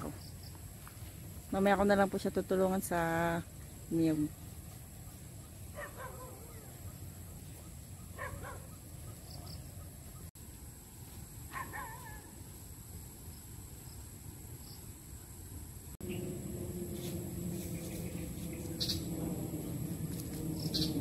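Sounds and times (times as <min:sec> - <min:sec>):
distant animal calls: 0:05.0 - 0:10.3
low background rumble: 0:15.2 - 0:21.0.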